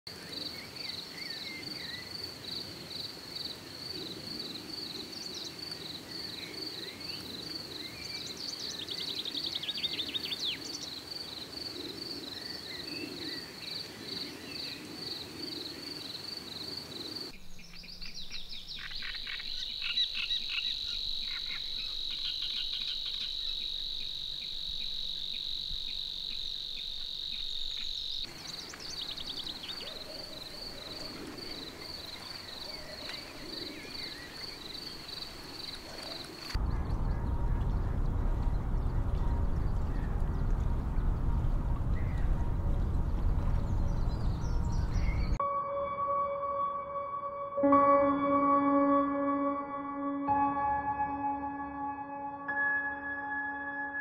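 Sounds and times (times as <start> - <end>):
continuous high insect trill: 0.1 - 36.6
bird calls: 3.9 - 41.2, 41.8 - 45.4
rhythmic insect chirping: 9.9 - 36.6
bird twitters: 17.4 - 38.0.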